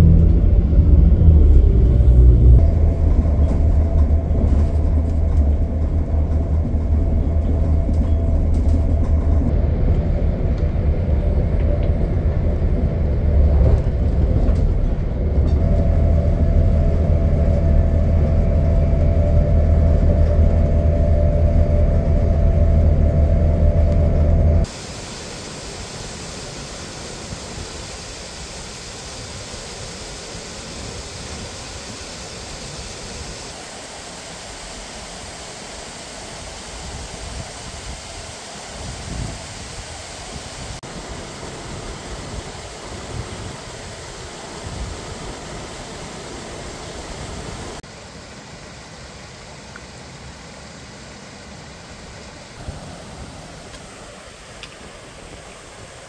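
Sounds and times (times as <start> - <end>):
train interior rumble: 0.0 - 56.0
faint steady drone: 15.2 - 38.4
small waterfall rushing: 24.6 - 56.0.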